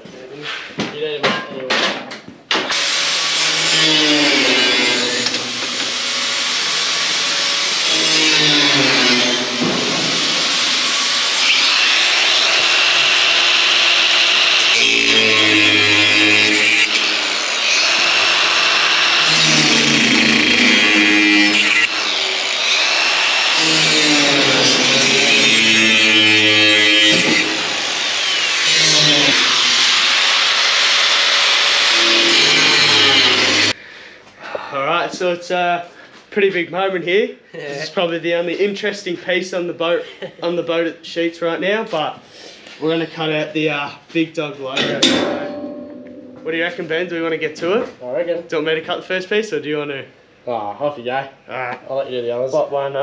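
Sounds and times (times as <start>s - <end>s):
angle grinder cutting metal: 2.7s - 33.8s, 44.8s - 45.8s.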